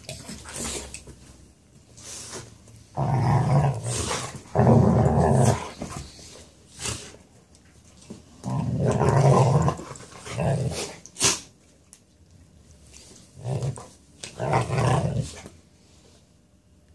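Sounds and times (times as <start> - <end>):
dogs growling: 2.9 - 6.1, 8.4 - 11.1, 13.4 - 15.5.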